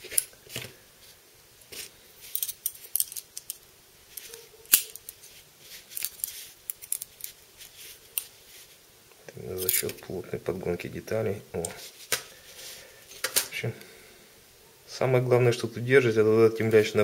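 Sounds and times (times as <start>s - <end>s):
small metal parts clicking and scraping: 0.0s - 0.7s, 1.7s - 8.7s, 9.6s - 10.0s.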